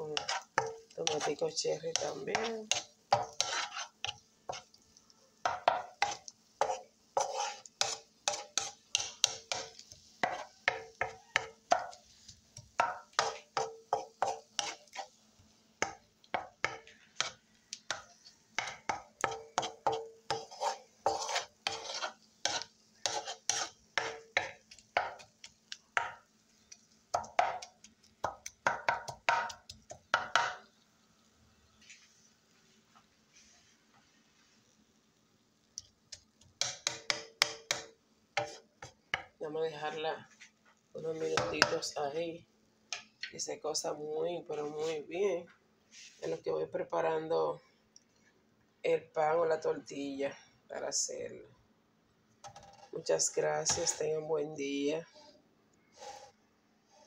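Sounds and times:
spatula scraping frying pan: 0.0 - 4.8, 5.4 - 30.6, 38.4 - 39.3, 53.6 - 54.1, 55.1 - 57.0.

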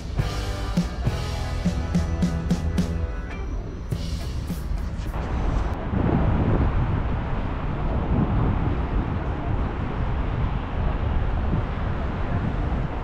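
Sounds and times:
wind buffeting microphone: 5.1 - 13.0.

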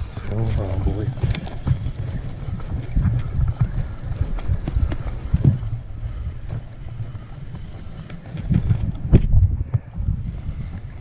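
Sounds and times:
wind buffeting microphone: 0.0 - 11.0
fishing rod and reel clicks: 1.2 - 5.2.

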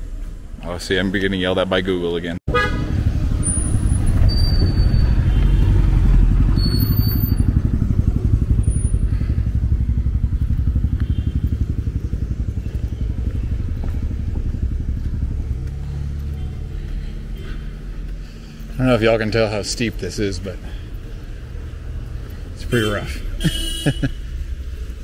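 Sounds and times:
motorcycle engine running: 2.5 - 22.5.

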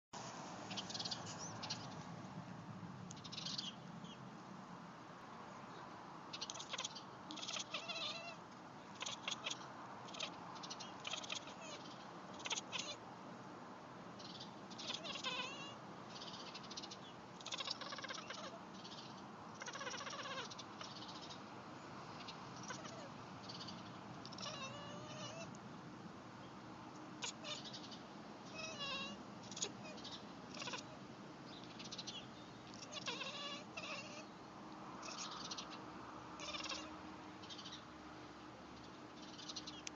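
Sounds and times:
cat chattering: 6.3 - 13.0, 14.2 - 21.4, 22.2 - 25.6, 27.2 - 27.8, 28.5 - 31.0, 32.7 - 34.3, 35.0 - 35.8, 36.4 - 36.9.

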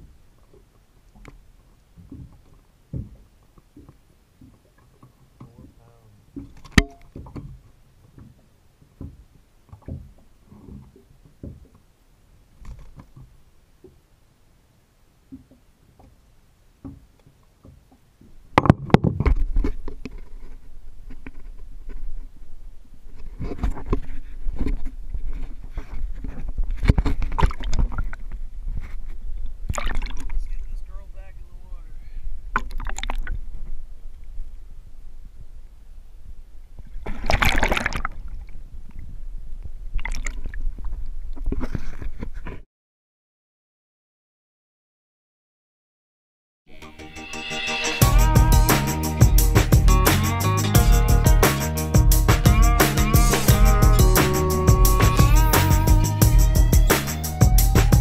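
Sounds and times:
thumps and knocks on boat: 2.0 - 11.8, 16.8 - 19.7
steady low rumble: 47.7 - 58.0.

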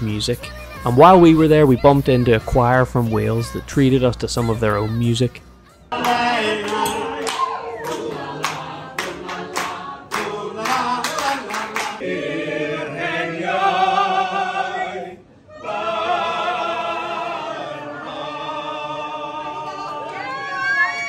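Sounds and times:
hand claps: 5.9 - 12.0
choir singing in harmony: 5.9 - 20.6.

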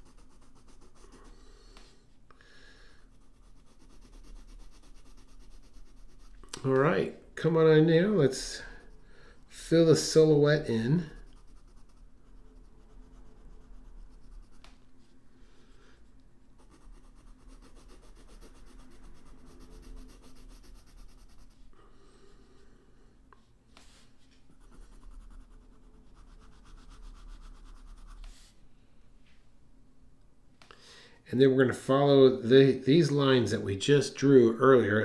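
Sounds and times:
pencil scratching on paper: 0.0 - 1.6, 3.0 - 6.4, 8.2 - 15.2, 16.6 - 21.7, 23.8 - 28.5.

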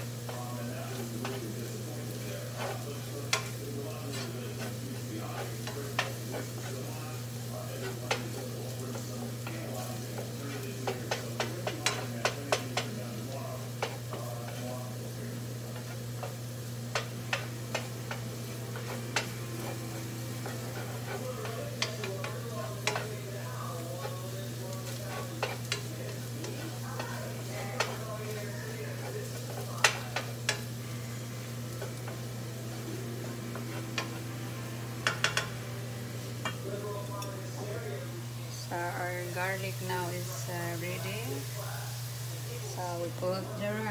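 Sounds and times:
garlic sizzling in oil: 0.0 - 43.9
steady low hum: 0.0 - 43.9
utensil scraping and tapping pan: 0.3 - 6.9, 7.8 - 14.7, 15.7 - 30.7, 33.5 - 34.2, 35.0 - 35.6.

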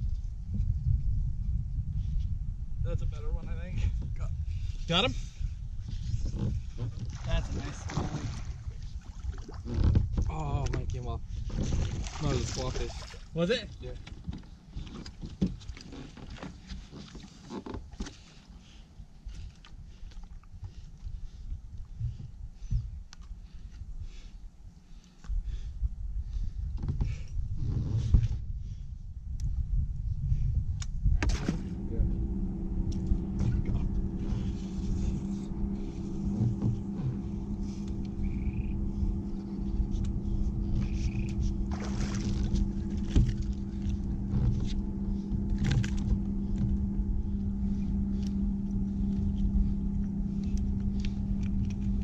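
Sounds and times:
wind rumble on microphone: 0.0 - 18.3, 19.0 - 52.0
electric motor humming: 31.2 - 52.0
fish flopping on boat deck: 31.2 - 52.0.

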